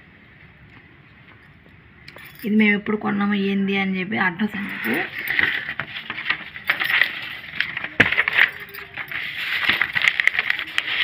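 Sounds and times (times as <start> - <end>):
light clinks: 1.4 - 2.6
paper rustling and crackling: 4.7 - 11.0.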